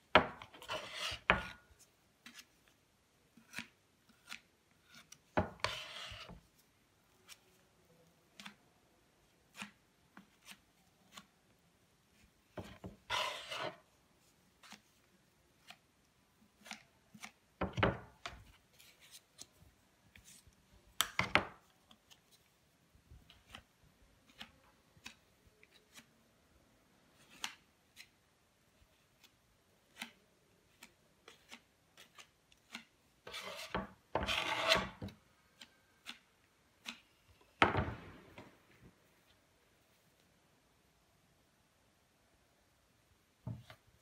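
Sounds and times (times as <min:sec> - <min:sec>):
metal knife scraping paste: 0:00.4 - 0:02.7, 0:03.3 - 0:06.6, 0:12.6 - 0:14.0, 0:31.2 - 0:37.1.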